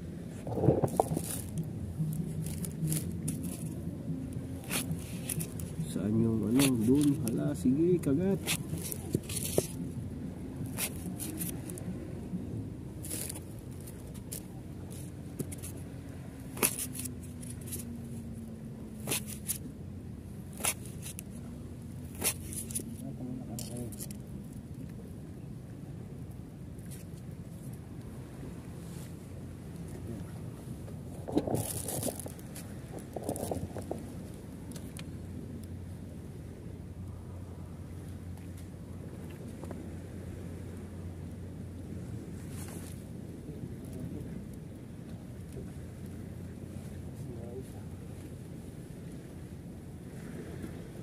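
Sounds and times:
low steady hum: 0:00.0 - 0:51.0
fabric rustling and scraping: 0:00.3 - 0:03.8, 0:04.6 - 0:05.9, 0:08.4 - 0:09.8, 0:19.0 - 0:19.6, 0:31.1 - 0:34.3.

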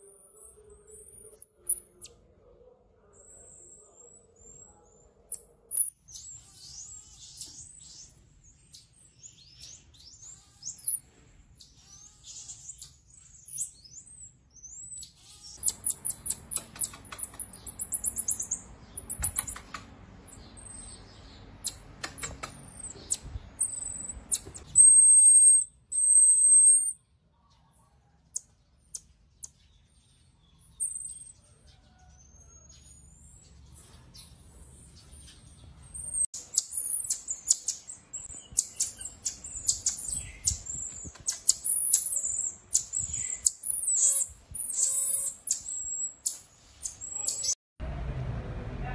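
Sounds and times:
baby marmosets chirping: 0:00.0 - 0:02.2, 0:03.2 - 0:11.0, 0:11.6 - 0:27.0, 0:30.6 - 0:31.5, 0:34.1 - 0:47.6
rapid light clicking and rustling: 0:16.4 - 0:17.8, 0:19.0 - 0:20.0, 0:21.8 - 0:22.7.

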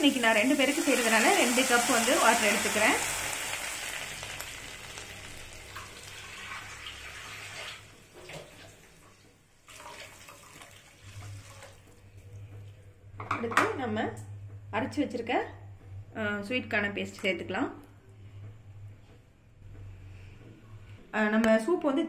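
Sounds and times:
vegetables sizzling in a pan: 0:00.0 - 0:07.1
water poured into a pan: 0:00.5 - 0:08.6, 0:09.6 - 0:11.8.

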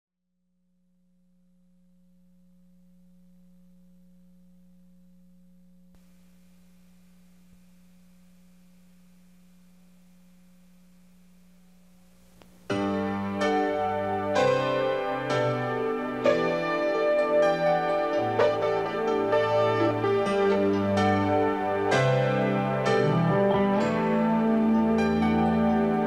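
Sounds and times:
faint low hum: 0:00.7 - 0:14.7
background hiss: 0:02.3 - 0:26.0.

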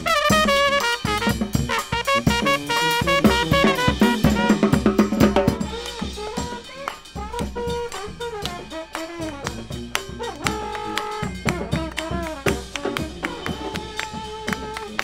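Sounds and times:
brass band playing: 0:00.0 - 0:15.0
drum beat: 0:00.0 - 0:15.0.

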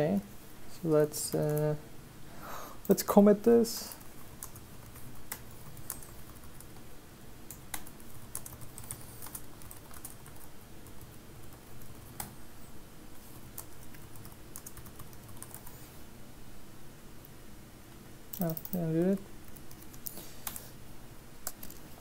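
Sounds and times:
computer keyboard typing: 0:03.9 - 0:06.8, 0:07.5 - 0:12.4, 0:13.4 - 0:15.8, 0:18.3 - 0:20.7, 0:21.4 - 0:22.0.

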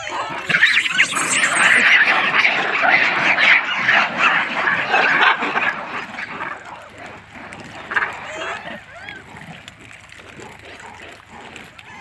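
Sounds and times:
monkeys squealing and calling: 0:00.0 - 0:06.9, 0:07.8 - 0:09.4.

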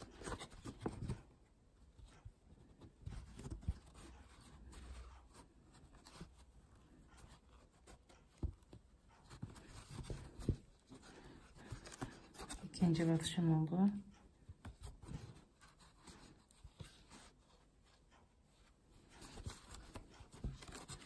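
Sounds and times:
soft handling knocks: 0:02.0 - 0:12.7.

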